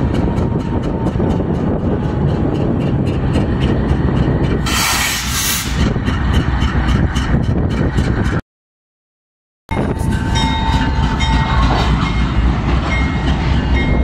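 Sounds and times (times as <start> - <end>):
freight train rumbling past: 0.0 - 8.4, 9.7 - 14.0
loud hiss: 4.6 - 5.8.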